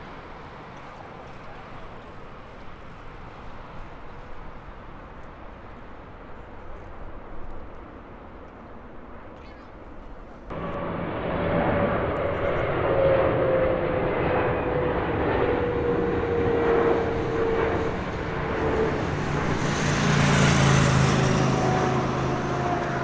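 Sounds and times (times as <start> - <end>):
jet plane whine: 0.0 - 23.0
low rumble: 10.5 - 23.0.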